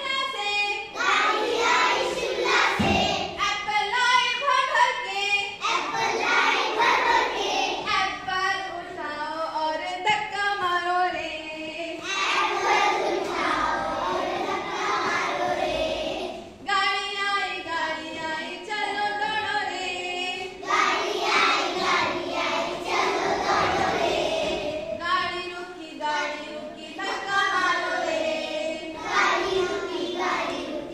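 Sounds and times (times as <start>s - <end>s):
children singing in unison: 0.8s - 3.4s, 5.5s - 8.2s, 11.9s - 16.7s, 17.7s - 30.9s.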